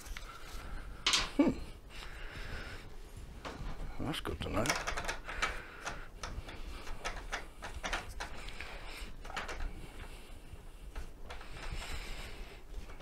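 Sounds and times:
light clicks taps and scrapes: 3.4s - 13.0s.

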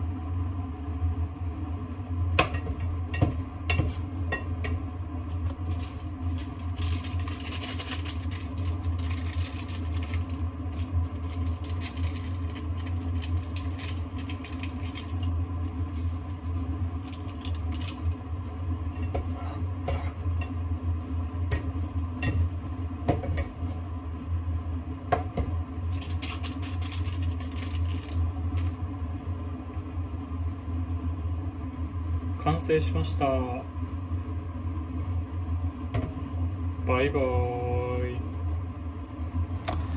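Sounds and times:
steady low hum: 0.0s - 39.9s
spatula scraping frying pan: 19.0s - 20.6s.

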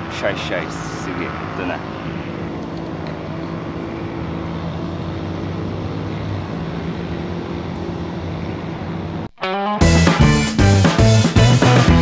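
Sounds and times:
low mechanical drone: 0.0s - 9.3s.

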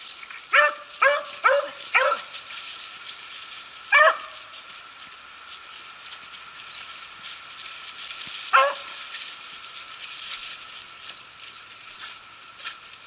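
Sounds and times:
steady high hiss: 0.0s - 13.0s
dog yelp: 0.5s - 2.3s, 3.9s - 4.4s, 8.5s - 9.0s.

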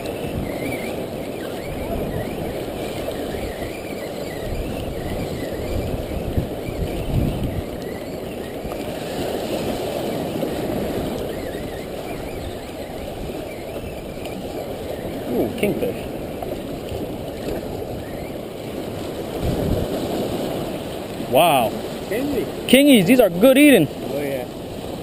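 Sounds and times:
waves washing against rocks: 0.0s - 25.0s
wind rumbling on microphone: 0.0s - 25.0s.

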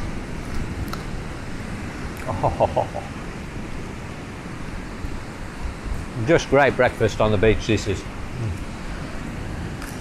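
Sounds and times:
surf on a beach: 0.0s - 10.0s
wind: 0.0s - 10.0s
short voice-like sounds: 8.4s - 8.6s.

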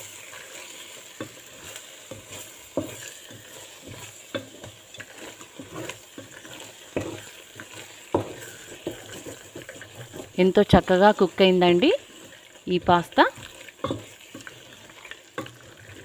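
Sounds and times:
pan sizzling: 0.0s - 16.0s
spatula stirring pasta in sauce: 0.0s - 16.0s
spatula knocking on pot: 8.1s - 9.6s, 13.8s - 14.1s.

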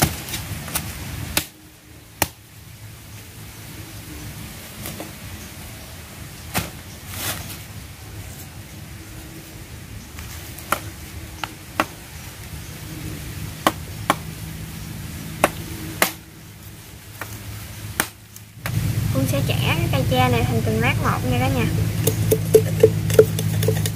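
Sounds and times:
machete chopping bamboo: 0.0s - 1.6s, 2.2s - 2.4s, 10.6s - 12.0s, 13.6s - 14.3s, 15.4s - 16.2s, 17.2s - 18.4s.

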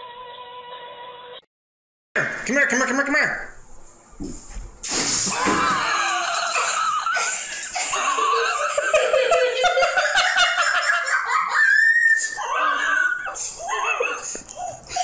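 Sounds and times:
high-pitched laughter: 5.8s - 15.0s.

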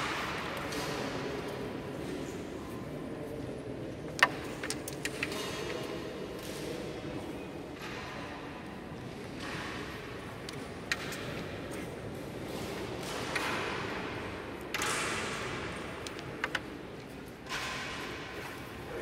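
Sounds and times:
wooden carrom pieces clacking: 4.1s - 5.7s, 16.0s - 16.7s.

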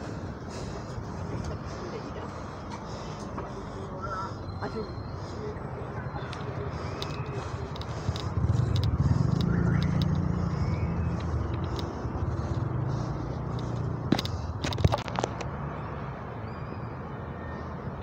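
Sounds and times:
vehicle engine rumbling: 0.0s - 16.4s
sharp clicks: 6.3s - 12.4s.

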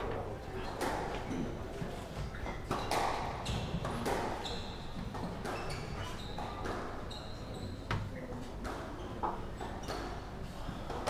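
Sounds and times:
shoes squeaking on wooden floor: 5.6s - 6.5s.

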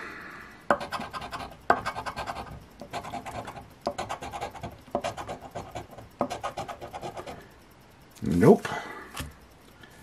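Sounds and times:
coin scratching lottery ticket: 0.8s - 7.4s.

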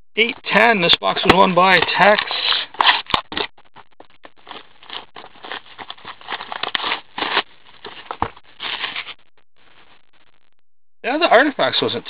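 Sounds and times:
plastic wrapping crinkling: 4.3s - 9.2s.

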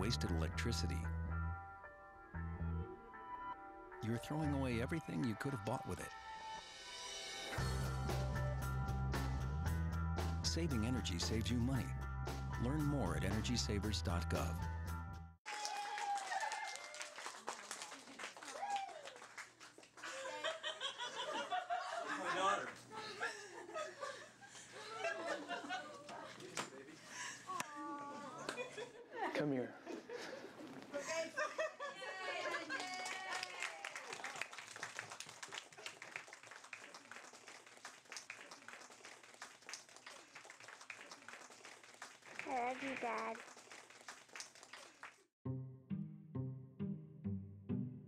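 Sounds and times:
people clapping: 15.4s - 20.8s, 32.2s - 45.3s
people chuckling: 20.0s - 27.6s, 28.2s - 33.0s
girl exclaiming and laughing: 27.5s - 28.5s.

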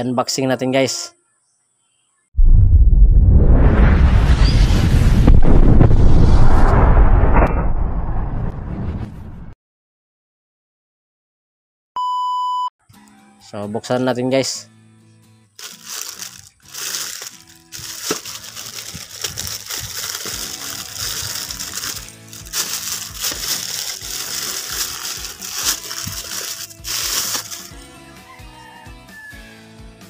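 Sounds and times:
background music: 12.8s - 30.0s
plastic pouch crinkling and tearing: 15.6s - 27.8s.

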